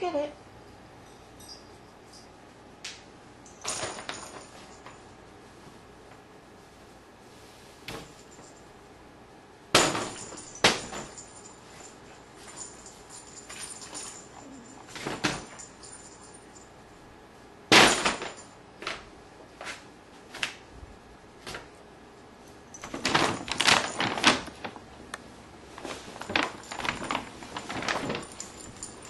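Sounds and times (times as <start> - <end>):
paper bag crackling: 22.8 - 29.0.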